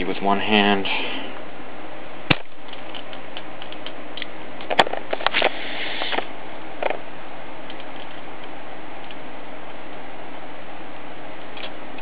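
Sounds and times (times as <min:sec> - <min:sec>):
steady hiss: 0:05.1 - 0:12.0.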